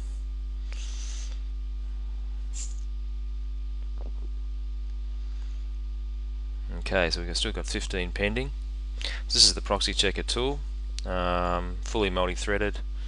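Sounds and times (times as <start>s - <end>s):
low electrical hum: 0.0s - 13.0s
faint short hisses: 0.7s - 1.3s, 2.5s - 2.9s.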